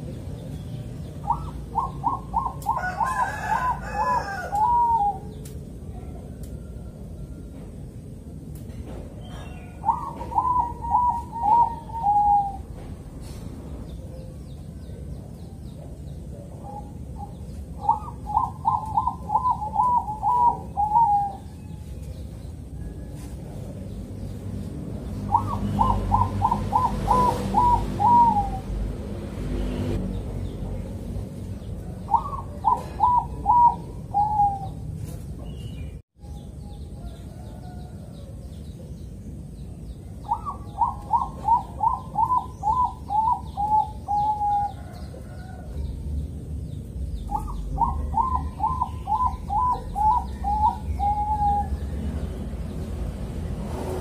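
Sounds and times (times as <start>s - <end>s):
dove cooing: 0.0s - 7.0s, 9.3s - 12.9s, 16.2s - 21.8s, 25.2s - 28.8s, 31.8s - 34.9s, 40.2s - 45.8s, 47.3s - 51.9s.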